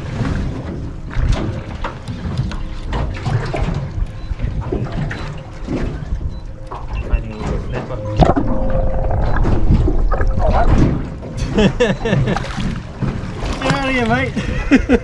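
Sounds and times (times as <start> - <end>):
wind rumble on microphone: 0.0 - 11.6
water splashing against boat hull: 0.0 - 14.9.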